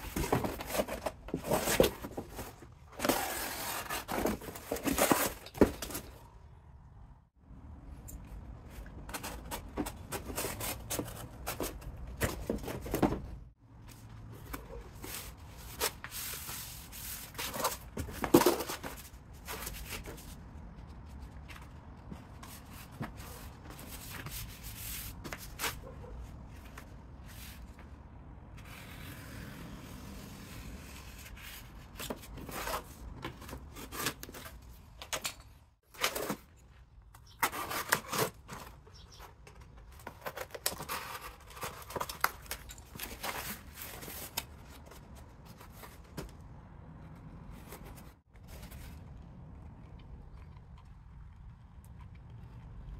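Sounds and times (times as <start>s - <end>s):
cardboard scraping on concrete: 0.0s - 6.2s, 8.8s - 20.5s, 21.1s - 27.9s, 28.6s - 34.8s, 35.9s - 46.3s.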